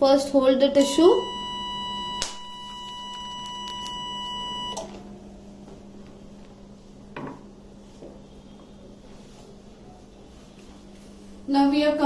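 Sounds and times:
low steady hum: 0.0 - 12.0
cautery unit high tone: 0.4 - 6.9.

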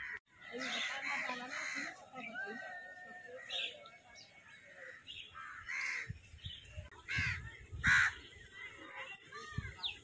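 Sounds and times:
crow cawing: 0.0 - 2.0, 4.8 - 6.1.

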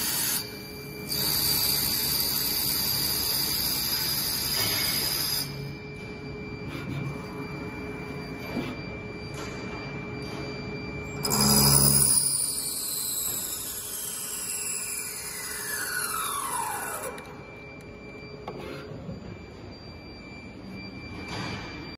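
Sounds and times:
lathe whining: 11.0 - 20.0.

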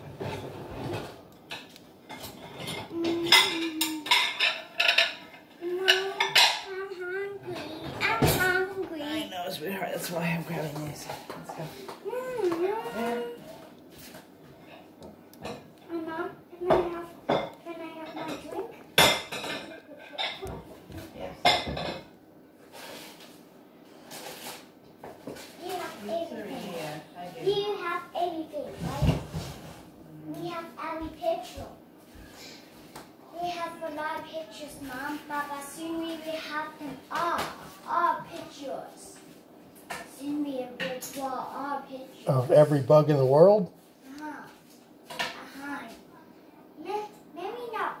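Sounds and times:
dishes and cutlery clattering: 0.0 - 6.8, 16.7 - 22.1.

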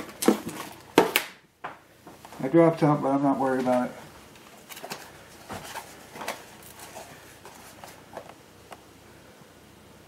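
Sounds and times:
packaging rustling: 3.6 - 8.4.

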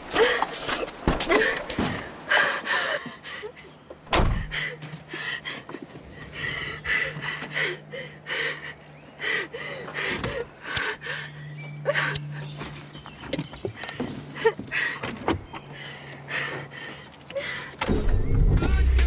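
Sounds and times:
woman breathing heavily: 1.3 - 12.6, 13.8 - 17.8
car door slamming: 4.1 - 4.6.

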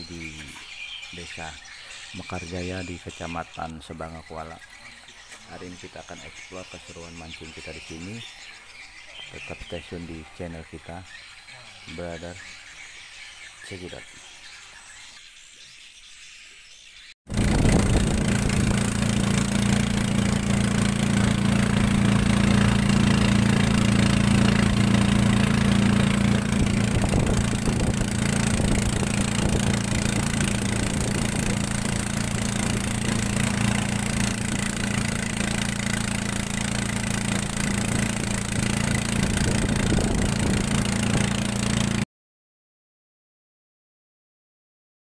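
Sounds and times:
boat motor running: 17.3 - 42.0.

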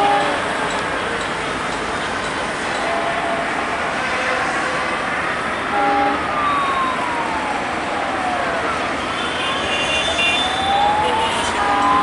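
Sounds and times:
passing train: 0.0 - 9.0
road traffic: 0.0 - 12.0
siren wailing: 5.7 - 12.0.

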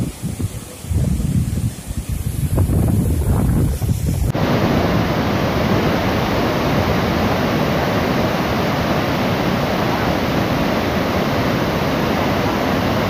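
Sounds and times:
wind buffeting microphone: 0.0 - 13.0
water rushing over rocky falls: 4.2 - 13.0.

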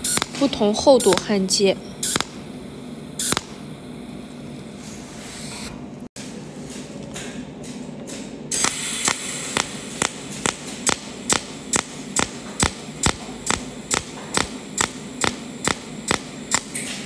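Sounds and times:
welding arc pulses snapping: 0.0 - 2.6, 3.2 - 4.8, 8.5 - 17.0.

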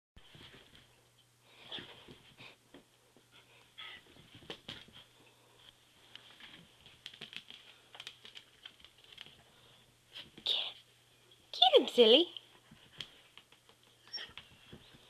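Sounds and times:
dog claws tapping on floor: 6.2 - 9.4.

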